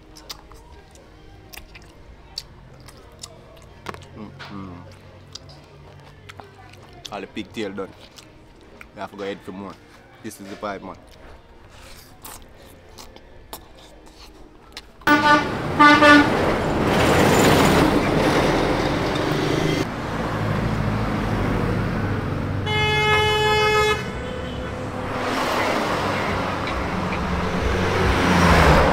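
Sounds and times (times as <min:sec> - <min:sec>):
vehicle horn toots: 0:15.1 - 0:16.5, 0:22.6 - 0:27.3
long horn blast: 0:15.1 - 0:17.5, 0:22.1 - 0:28.9
vehicle passing: 0:15.1 - 0:28.9.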